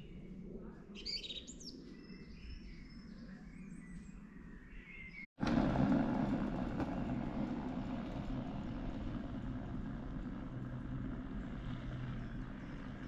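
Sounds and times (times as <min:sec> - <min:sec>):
woodland birds chirping: 0:00.0 - 0:05.3
faint low rumble: 0:05.4 - 0:13.0
steady rushing noise: 0:05.4 - 0:13.0.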